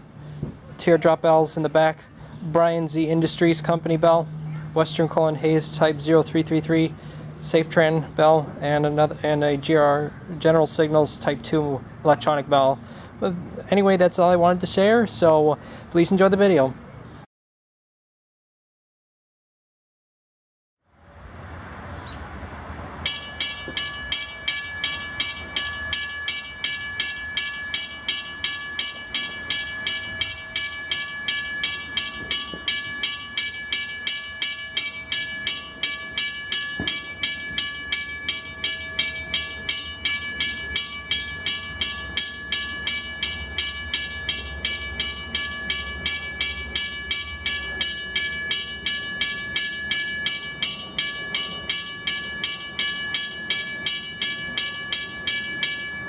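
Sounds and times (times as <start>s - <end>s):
railroad crossing bell ringing: 23.0s - 56.0s.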